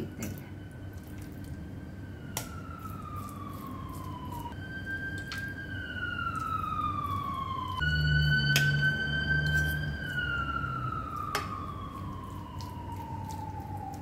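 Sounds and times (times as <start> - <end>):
low hum: 0.0 - 14.0
siren wailing: 0.0 - 14.0.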